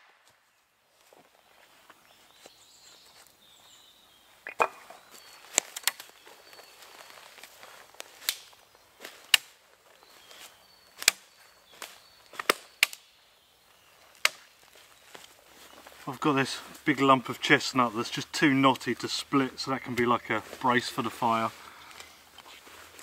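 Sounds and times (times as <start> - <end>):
dead sticks snapping: 4.5 - 4.8, 5.5 - 6.1, 8.0 - 8.6, 9.2 - 9.6, 11.0 - 13.1, 14.1 - 14.5.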